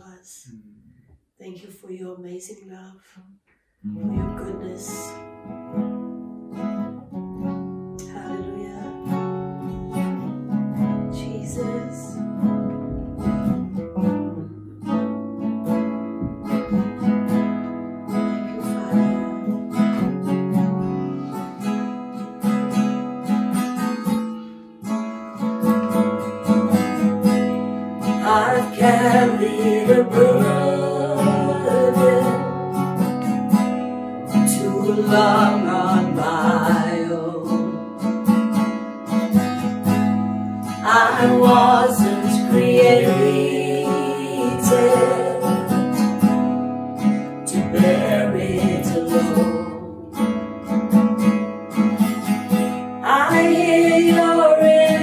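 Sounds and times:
acoustic guitar strumming: 0:03.8 - 0:55.0
woman singing: 0:04.0 - 0:05.2, 0:08.0 - 0:09.3, 0:11.0 - 0:12.4, 0:18.6 - 0:19.6, 0:28.0 - 0:32.9, 0:34.3 - 0:37.9, 0:40.6 - 0:46.2, 0:47.4 - 0:50.2, 0:53.0 - 0:55.0.

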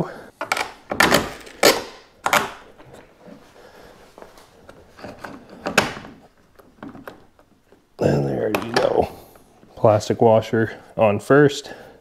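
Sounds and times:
metal bolt clicking and scraping: 0:00.4 - 0:02.6.

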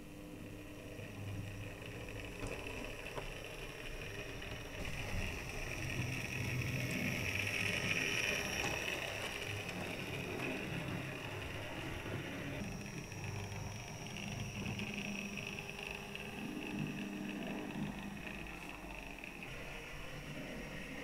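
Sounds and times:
model train motor whirring: 0:00.0 - 0:21.0.

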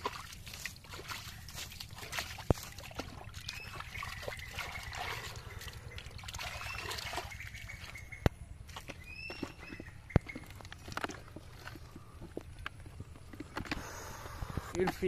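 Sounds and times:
hands splashing in muddy water: 0:00.0 - 0:11.2.

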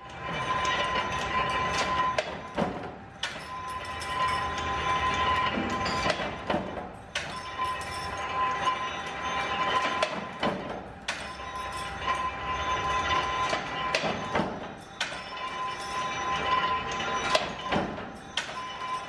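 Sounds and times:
power press machine whine: 0:00.0 - 0:19.0
sharp metallic clanks: 0:00.2 - 0:19.0.

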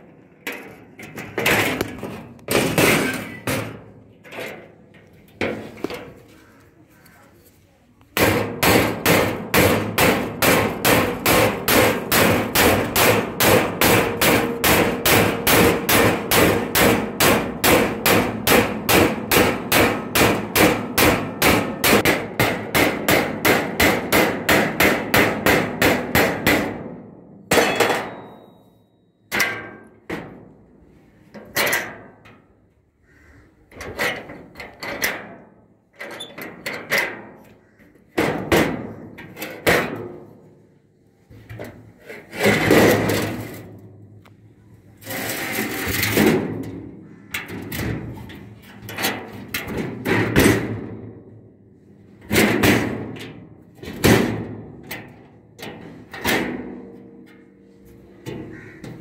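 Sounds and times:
hammer on chisel cutting metal: 0:08.2 - 0:26.8.

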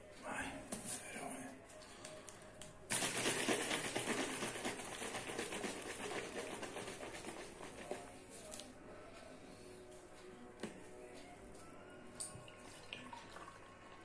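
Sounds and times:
liquid sloshing in shaken bottle: 0:02.9 - 0:08.2.

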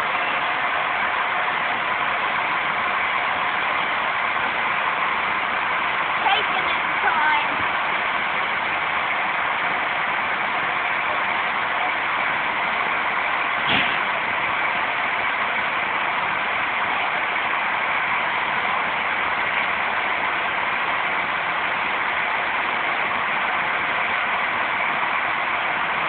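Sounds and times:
steam hissing: 0:00.0 - 0:26.0
short knock: 0:13.7 - 0:14.1.

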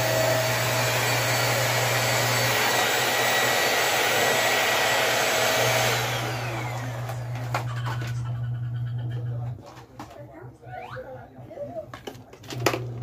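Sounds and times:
vacuum cleaner running: 0:00.0 - 0:08.9.

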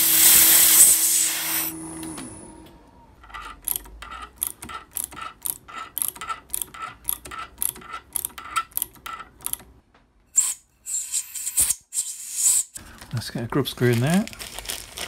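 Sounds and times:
ratchet tap wrench clicking: 0:03.6 - 0:09.6
plastic packet crinkling: 0:12.8 - 0:15.0.

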